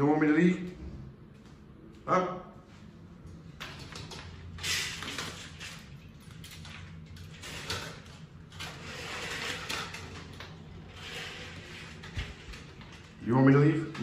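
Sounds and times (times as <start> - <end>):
steady low hum: 0.0 - 14.0
window blind slats scraping: 7.3 - 13.5.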